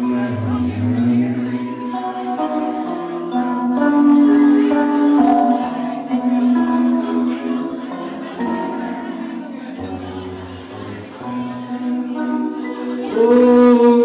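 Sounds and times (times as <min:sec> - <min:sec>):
electric guitar notes: 0:00.0 - 0:07.4
vibraphone notes: 0:00.0 - 0:14.0.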